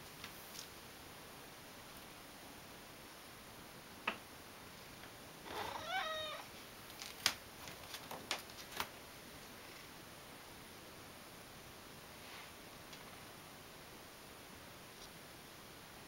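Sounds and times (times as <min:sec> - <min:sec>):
cat meowing: 0:05.5 - 0:06.5.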